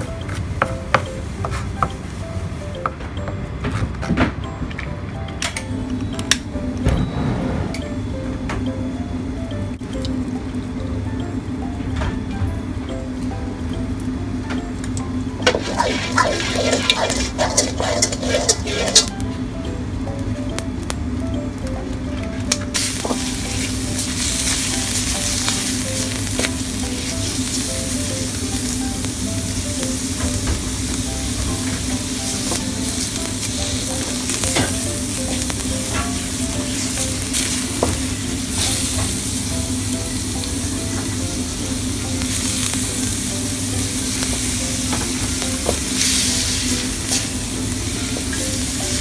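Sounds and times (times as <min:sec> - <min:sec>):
meat sizzling in oil: 0:15.3 - 0:19.2, 0:22.4 - 0:49.0
wooden spatula scraping pan: 0:15.5 - 0:19.1.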